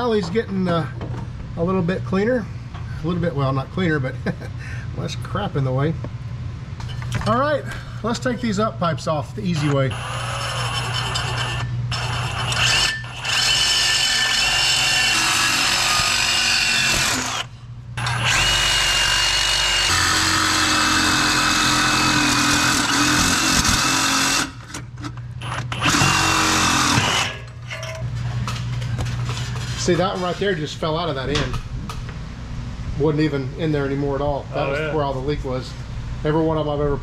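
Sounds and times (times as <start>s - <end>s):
reciprocating saw cutting pipe: 9.9s - 24.6s, 25.8s - 27.5s.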